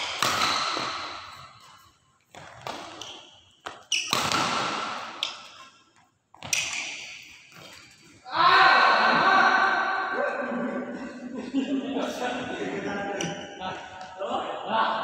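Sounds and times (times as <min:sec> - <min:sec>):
racket hitting shuttlecock: 0:00.0 - 0:05.8, 0:06.4 - 0:07.9
shoes squeaking on court floor: 0:00.0 - 0:08.2.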